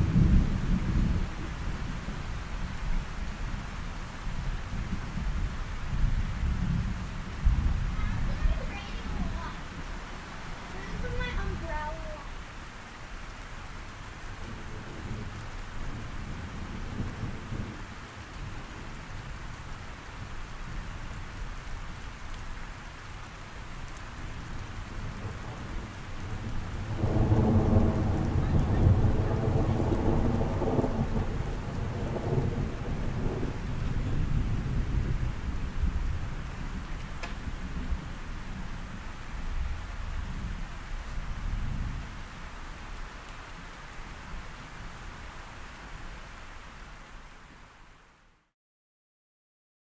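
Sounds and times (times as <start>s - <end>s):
thunder rumbling: 0.0s - 2.4s, 4.3s - 12.4s, 14.3s - 19.1s, 24.2s - 42.3s
steady rain: 0.0s - 48.6s.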